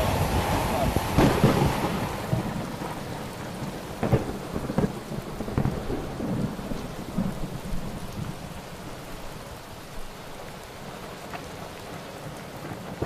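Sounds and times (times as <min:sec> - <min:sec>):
heavy rain hissing: 0:00.0 - 0:13.0
sharp taps of raindrops: 0:03.7 - 0:06.9, 0:10.4 - 0:13.0.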